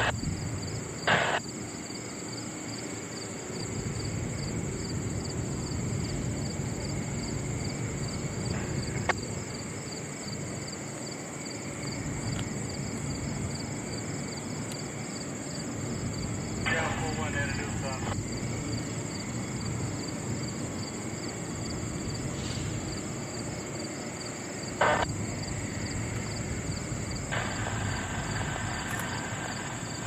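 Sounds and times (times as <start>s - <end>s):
distant freight train rumble: 0.0s - 30.0s
highway traffic: 0.0s - 30.0s
insects trilling: 0.0s - 30.0s.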